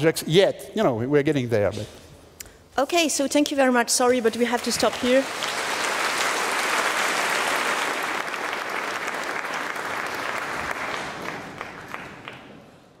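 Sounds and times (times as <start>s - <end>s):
audience applauding: 4.6s - 13.0s.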